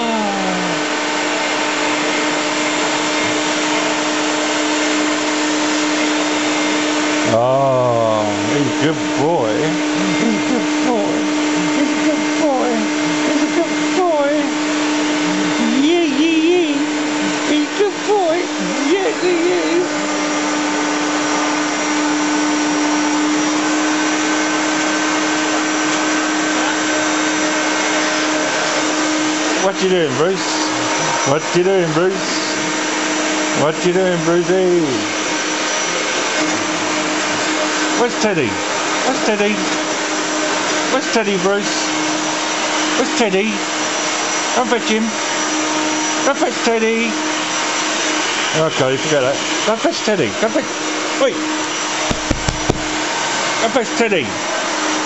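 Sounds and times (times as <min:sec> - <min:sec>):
vacuum cleaner running: 0:00.0 - 0:55.0.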